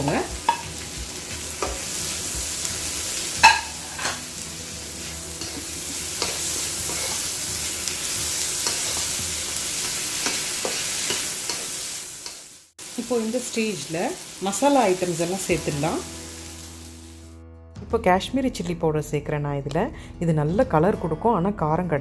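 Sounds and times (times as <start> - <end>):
vegetables sizzling in hot oil: 0.0 - 17.3.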